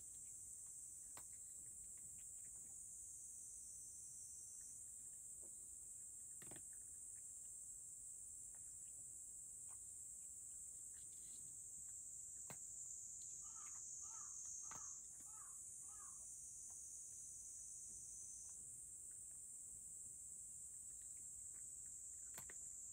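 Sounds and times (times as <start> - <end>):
cat eating from a dish: 0.0 - 13.4, 18.1 - 22.9
steady high-pitched hiss: 0.0 - 22.9.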